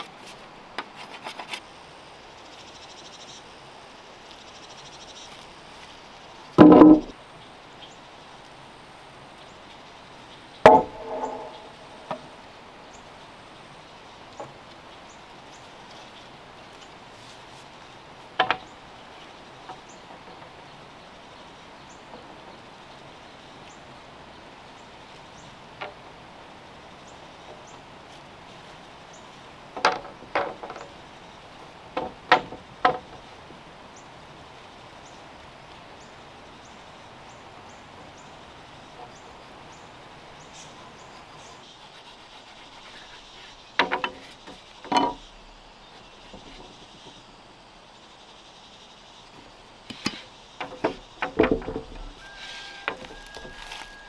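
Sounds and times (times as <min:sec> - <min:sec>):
bamboo poles knocking on logs: 0:06.6 - 0:07.2, 0:10.6 - 0:12.4, 0:18.4 - 0:18.7, 0:25.8 - 0:26.0, 0:29.7 - 0:31.0, 0:31.9 - 0:33.2, 0:43.8 - 0:45.4, 0:49.9 - 0:54.0
faint high chirps: 0:52.2 - 0:54.0.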